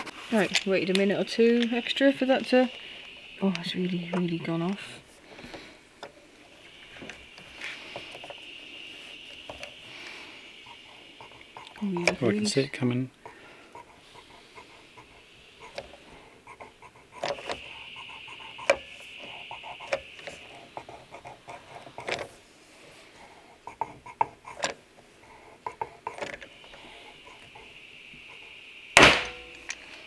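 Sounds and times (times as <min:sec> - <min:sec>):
faint hiss: 0:00.0 - 0:30.0
dent puller clicking and creaking: 0:17.1 - 0:17.8, 0:25.6 - 0:26.8.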